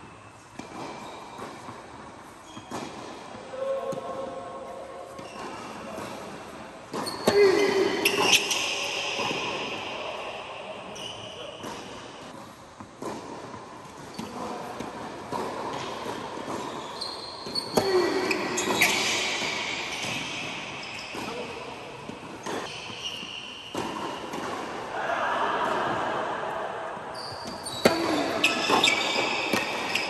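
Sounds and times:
shoe squeaks: 0.1 - 4.2, 5.1 - 10.1, 10.9 - 12.3, 14.1 - 14.5, 15.3 - 24.4, 27.1 - 30.0
racket striking tennis ball: 0.5 - 4.3, 5.0 - 25.0, 25.6 - 30.0
tennis ball bouncing: 0.5 - 4.3, 5.0 - 24.9, 26.8 - 30.0.

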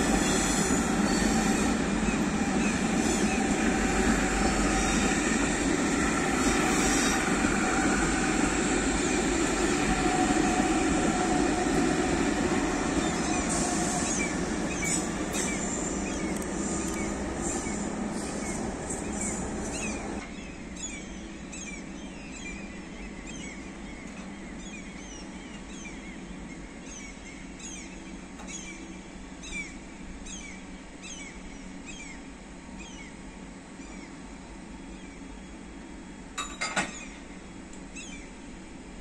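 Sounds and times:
train rumbling past: 0.0 - 39.0
birds chirping: 9.0 - 28.9.

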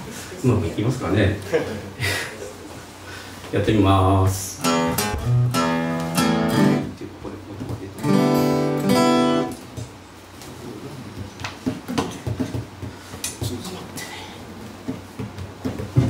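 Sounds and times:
acoustic guitars strumming: 4.5 - 7.0, 7.8 - 9.7
knocks of guitars handled: 4.9 - 6.4, 11.1 - 13.7, 14.7 - 16.0.

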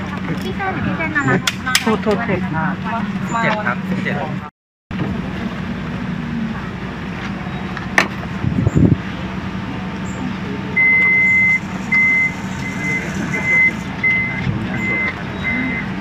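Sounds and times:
electronic warning beeps: 10.8 - 16.0.

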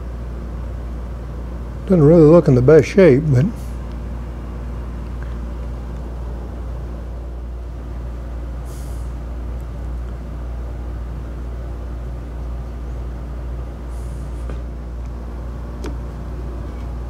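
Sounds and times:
machinery humming: 0.0 - 17.0
short hisses: 8.6 - 9.2, 13.9 - 14.6.

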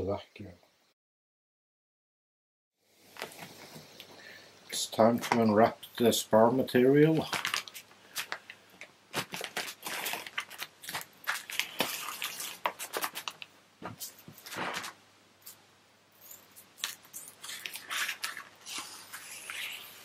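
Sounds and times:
plastic film crinkling: 7.0 - 15.0, 16.8 - 20.0.

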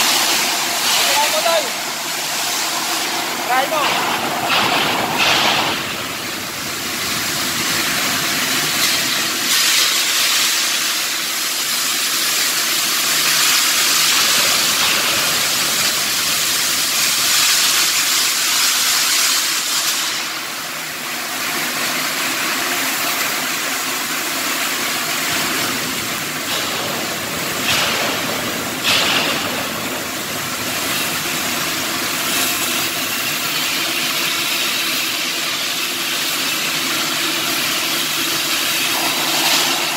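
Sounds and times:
machine hum: 0.0 - 8.6, 38.4 - 39.9
welding arc sizzling and crackling: 0.0 - 39.9.

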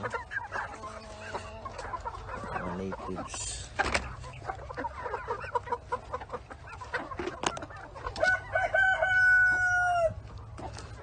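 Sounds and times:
chickens clucking: 0.0 - 11.0
rooster crowing: 8.2 - 10.2.

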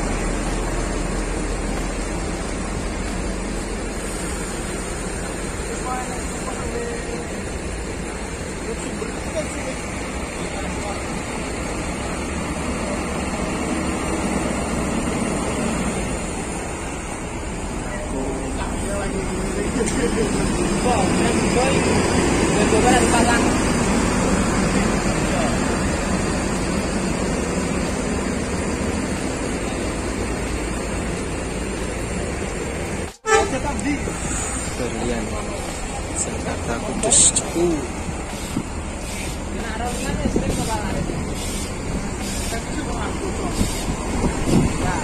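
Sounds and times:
bus engines rumbling: 0.0 - 45.0.

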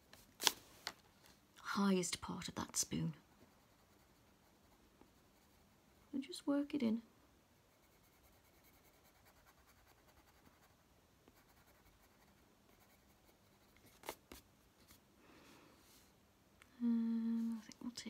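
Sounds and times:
coloured pencil scratching paper: 3.4 - 6.1, 7.7 - 10.7, 11.3 - 14.4.

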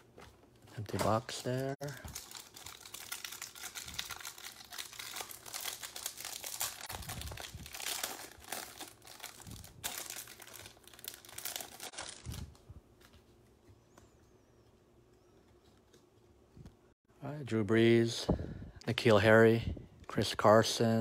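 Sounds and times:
plastic wrapper tearing and crinkling: 0.9 - 12.6.

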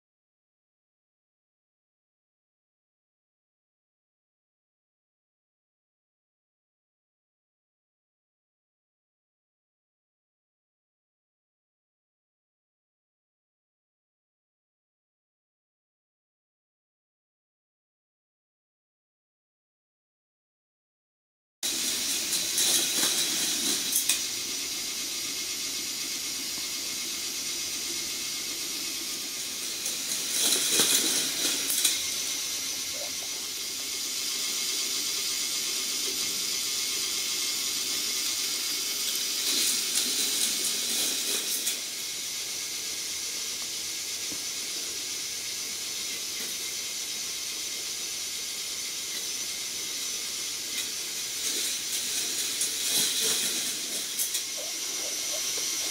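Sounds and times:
toy motor whirring: 21.6 - 55.9
plastic chain clatter: 21.8 - 24.2, 29.6 - 32.3, 50.8 - 54.7.

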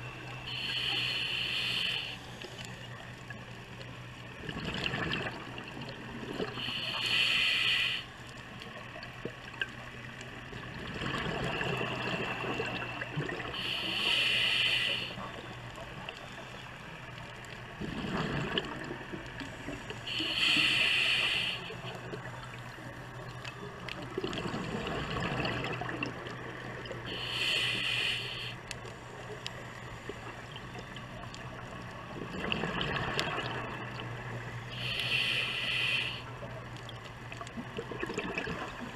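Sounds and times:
regulator inhale hiss: 0.4 - 2.8, 6.4 - 8.3, 13.5 - 15.4, 20.0 - 22.0, 27.1 - 28.7, 34.6 - 36.5
exhaled bubbles underwater: 4.3 - 6.8, 8.7 - 14.4, 17.7 - 21.0, 23.2 - 27.7, 30.0 - 34.3, 36.9 - 38.9.

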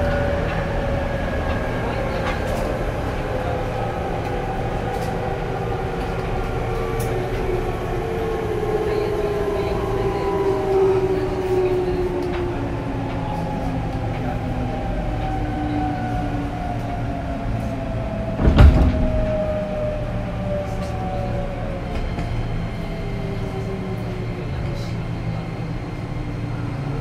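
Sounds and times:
train rumble: 0.0 - 27.0
loud thump: 18.4 - 19.3.

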